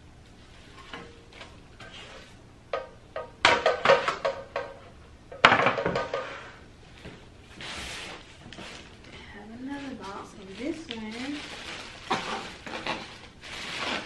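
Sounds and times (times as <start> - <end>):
metal baking pans clattering: 2.8 - 6.6, 12.1 - 12.9.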